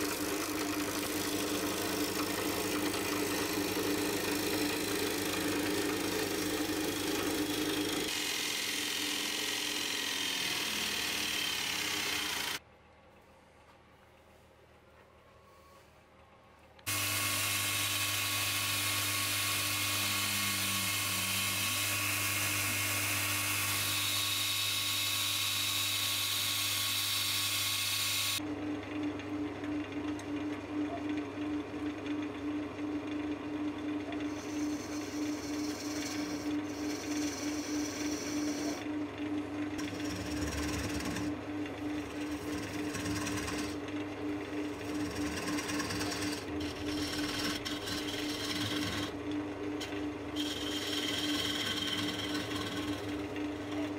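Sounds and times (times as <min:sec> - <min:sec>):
lathe motor humming: 0:00.0 - 0:12.6, 0:16.9 - 0:53.9
gouge scraping wood: 0:34.3 - 0:38.8, 0:39.8 - 0:41.4, 0:42.0 - 0:43.8, 0:44.6 - 0:49.2, 0:49.8 - 0:53.9
grinder sharpening steel: 0:34.3 - 0:38.8, 0:44.9 - 0:49.1, 0:50.4 - 0:53.1.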